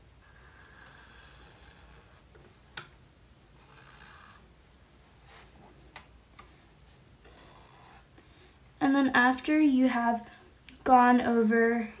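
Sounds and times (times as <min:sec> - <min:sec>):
marker scratching on paper: 0:00.2 - 0:02.2, 0:03.6 - 0:04.4, 0:07.2 - 0:08.1.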